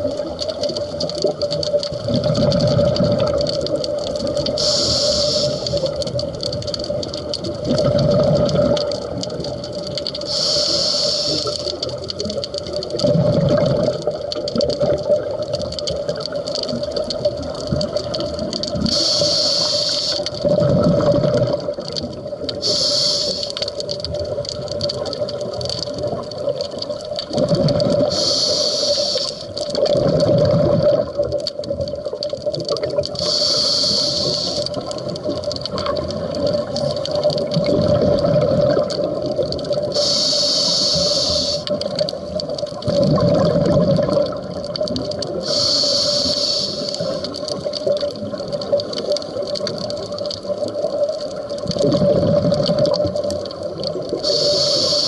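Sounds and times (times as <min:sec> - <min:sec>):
exhaled bubbles gushing: 0:00.0 - 0:55.0
demand valve hiss: 0:04.6 - 0:05.9, 0:10.3 - 0:11.7, 0:18.9 - 0:20.3, 0:22.6 - 0:23.6, 0:28.1 - 0:29.6, 0:33.2 - 0:34.8, 0:40.0 - 0:41.8, 0:45.4 - 0:47.2, 0:54.2 - 0:55.0
steady hum: 0:40.0 - 0:41.7.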